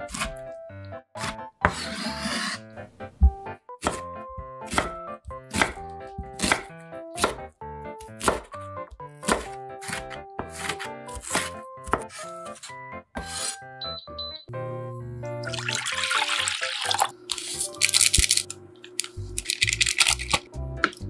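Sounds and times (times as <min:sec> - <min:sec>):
knife chopping onion on board: 0:00.0 - 0:00.5, 0:01.2 - 0:02.6, 0:03.2 - 0:13.6
light background music: 0:00.0 - 0:21.0.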